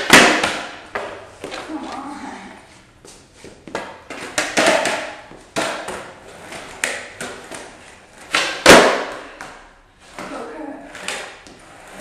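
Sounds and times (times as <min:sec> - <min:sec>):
skateboard slapping down: 0:00.0 - 0:01.7, 0:03.7 - 0:09.6
skateboard clacking on wooden boards: 0:03.7 - 0:09.6.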